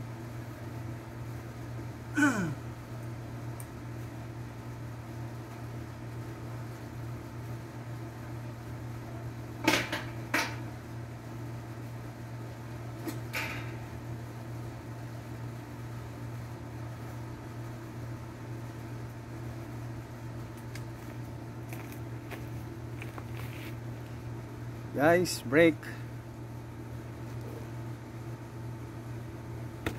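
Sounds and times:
low mechanical hum: 0:00.0 - 0:29.9.

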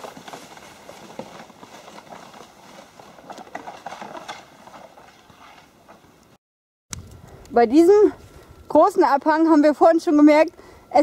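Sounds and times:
ski scraping over snow: 0:00.0 - 0:06.1.

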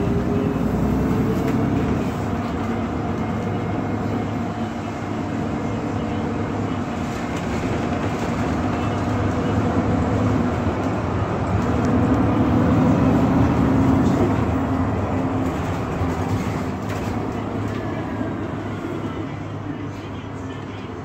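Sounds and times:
bus engine humming: 0:00.0 - 0:21.0
road noise: 0:00.0 - 0:21.0.

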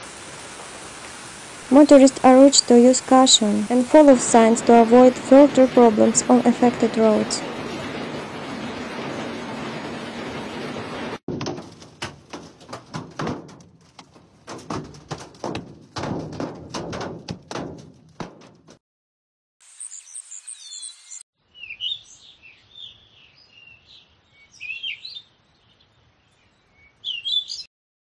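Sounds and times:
hailstones striking a car: 0:04.4 - 0:18.8
small birds chirping: 0:19.7 - 0:27.7.

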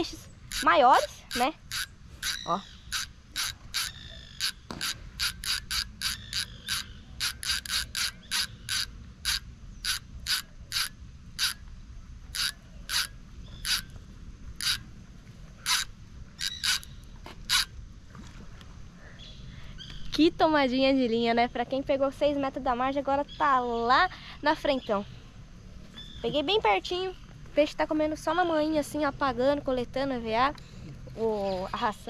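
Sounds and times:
fishing reel drag clicking: 0:00.0 - 0:11.7, 0:12.3 - 0:14.0, 0:14.6 - 0:14.8, 0:15.6 - 0:17.7.

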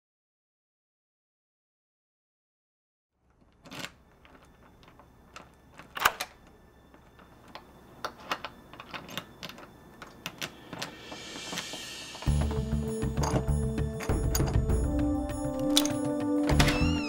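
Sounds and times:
faint low hum: 0:03.2 - 0:15.9.

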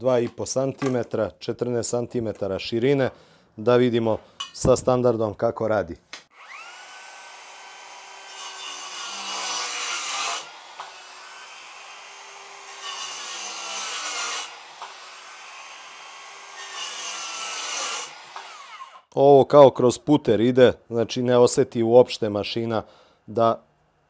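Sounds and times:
circular saw cutting wood: 0:06.3 - 0:19.1
saw motor whining: 0:06.3 - 0:19.1.

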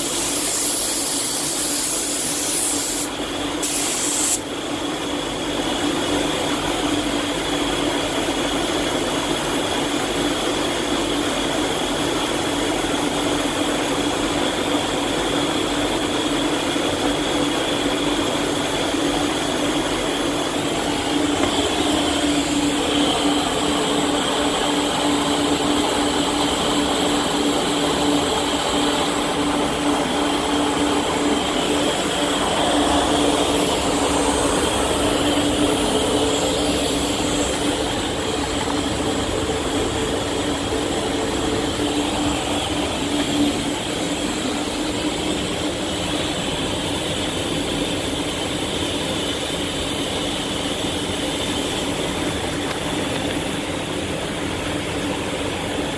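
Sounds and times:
spray gun air hiss: 0:00.0 - 0:04.5, 0:20.5 - 0:46.3
paint booth air rushing: 0:00.0 - 0:04.6, 0:17.6 - 0:55.2.

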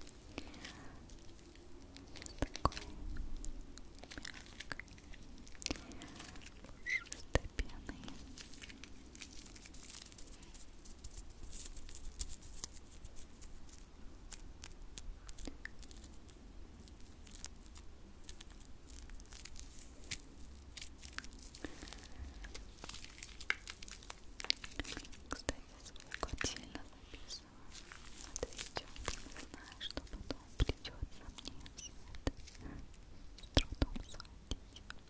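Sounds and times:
hands rubbing together: 0:09.5 - 0:13.7, 0:24.6 - 0:32.5.

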